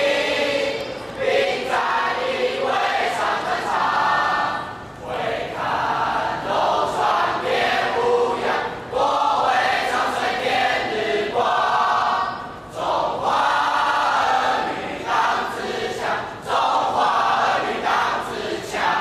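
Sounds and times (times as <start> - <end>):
boys choir singing: 0.0 - 19.0.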